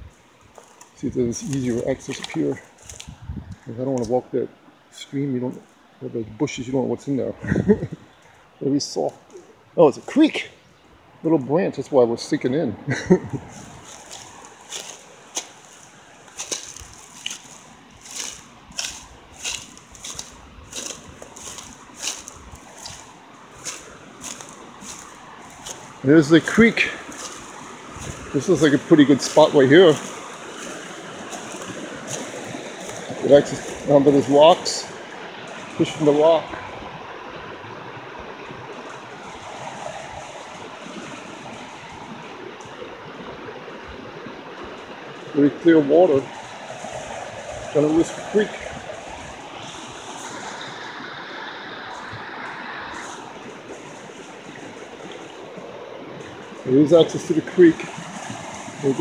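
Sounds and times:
footsteps crunching through dry leaves: 0.0 - 3.7, 13.1 - 37.0, 38.7 - 43.0, 46.2 - 59.0
creek water rushing over rocks: 0.0 - 59.0.

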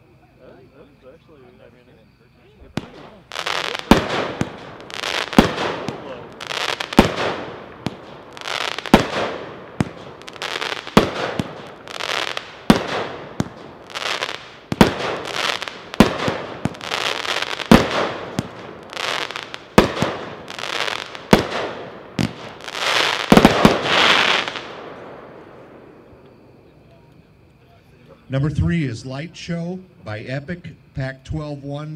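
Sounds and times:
fireworks cracking and crackling: 2.7 - 25.0.

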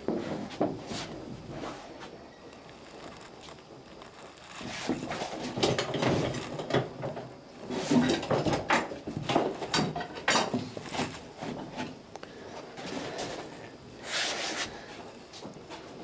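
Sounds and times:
wooden knocks clicks and scraping: 0.0 - 1.4, 2.5 - 13.7.

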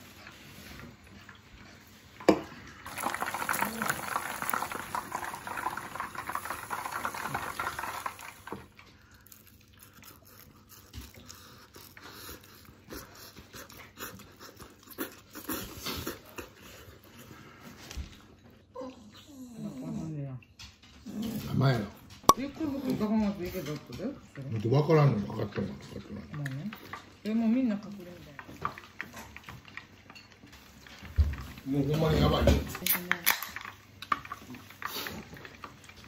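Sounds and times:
person chewing crunchy food: 2.8 - 17.2.

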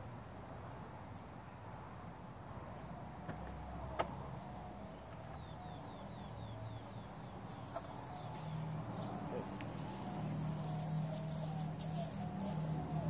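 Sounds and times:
faint high chirping: 3.6 - 13.0.

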